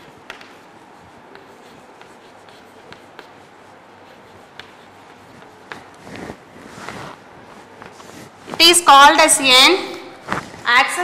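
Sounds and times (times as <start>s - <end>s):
chalk tapping and scratching: 0.0s - 8.7s
steady background hiss: 0.0s - 11.0s.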